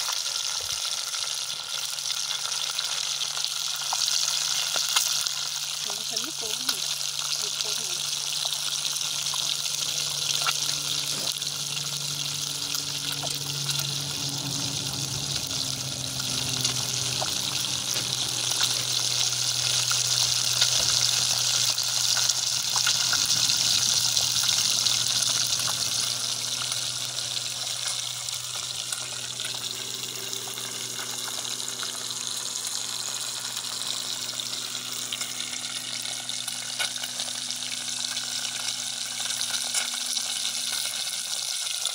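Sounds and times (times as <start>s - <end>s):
fish sizzling in hot oil: 0.0s - 41.9s.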